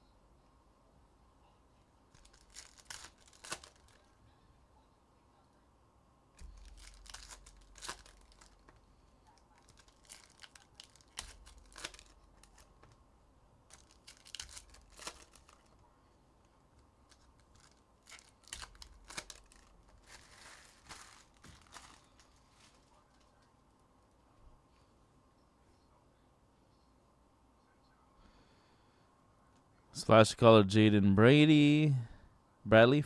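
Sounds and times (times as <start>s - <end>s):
cards being handled: 2.1s - 4.1s, 6.4s - 8.8s, 9.5s - 13.0s, 13.7s - 15.8s, 16.7s - 23.4s
foil wrappers tearing and crinkling: 2.2s - 4.1s, 6.4s - 13.0s, 13.7s - 15.8s, 17.1s - 23.3s.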